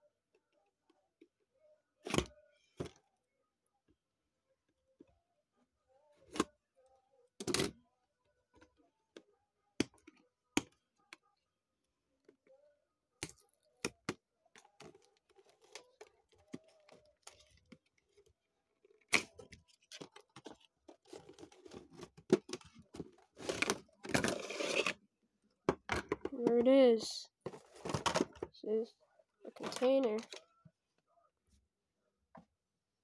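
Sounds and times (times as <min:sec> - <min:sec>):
cardboard rustling and scraping: 0:20.0 - 0:25.0, 0:27.5 - 0:28.3.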